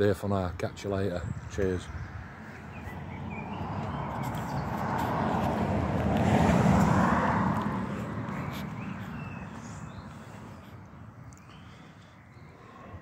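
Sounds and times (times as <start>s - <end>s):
car driving past: 2.2s - 11.2s.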